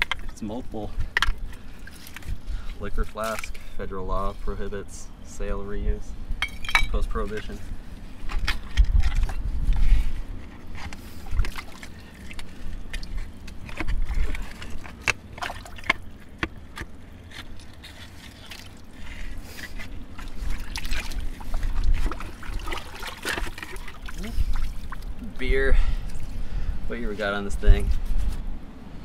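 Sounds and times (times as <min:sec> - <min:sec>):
water sloshing and splashing: 0:00.0 - 0:03.8, 0:08.0 - 0:25.3.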